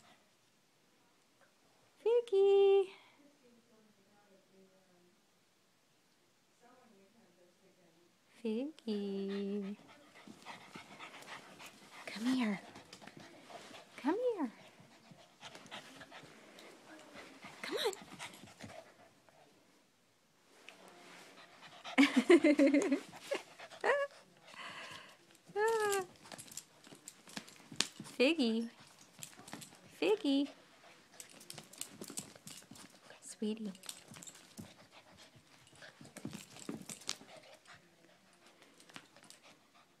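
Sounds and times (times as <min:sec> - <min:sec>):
puppy paws tapping on floor: 0:24.9 - 0:30.0, 0:31.2 - 0:37.4.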